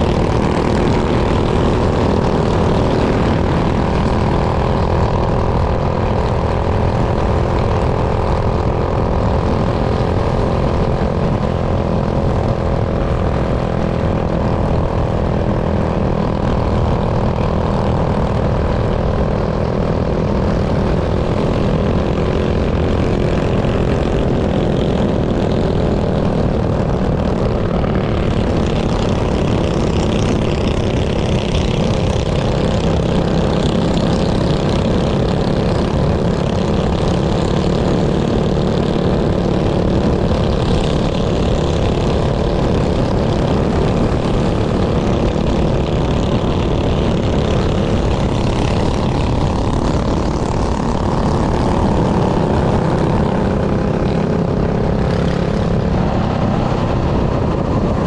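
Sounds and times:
small engine running: 0:19.8 - 0:58.0.

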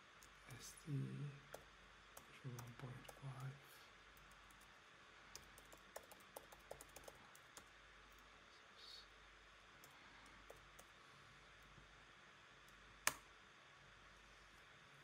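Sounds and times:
computer keyboard keystrokes: 0:05.4 - 0:07.7.

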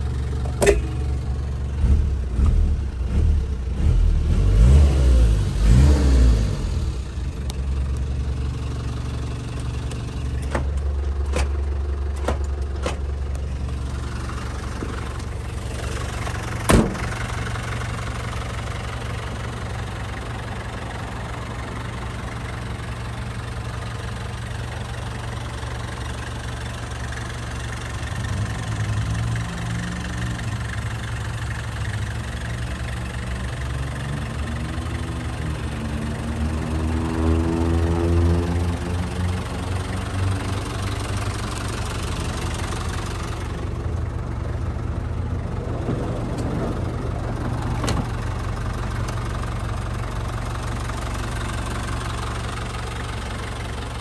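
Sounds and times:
diesel engine idling: 0:00.0 - 0:04.3, 0:06.3 - 0:37.4, 0:38.4 - 0:54.0
loud thump: 0:16.7 - 0:17.1.

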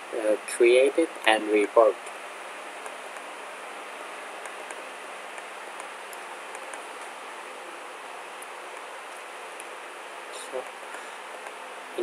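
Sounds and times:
microphone and room hiss: 0:00.0 - 0:12.0
computer mouse clicks: 0:02.8 - 0:03.3, 0:04.4 - 0:07.1.

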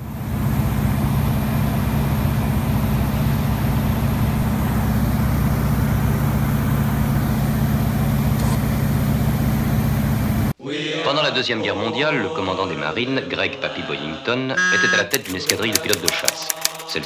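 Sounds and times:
propeller aircraft engine drone: 0:00.0 - 0:10.6.

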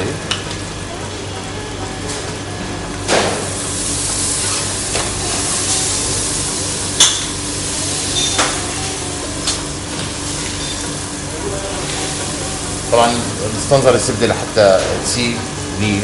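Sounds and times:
butter sizzling in frying pan: 0:03.4 - 0:14.5.

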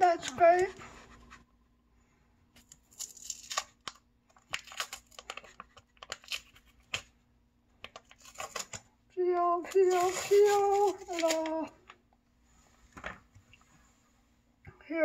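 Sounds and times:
seal crinkling and tearing: 0:02.6 - 0:07.1, 0:07.8 - 0:08.9, 0:09.6 - 0:12.0.

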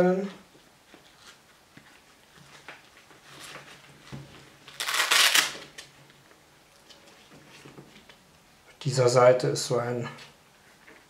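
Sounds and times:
strap rustling and clicking: 0:00.9 - 0:06.2.

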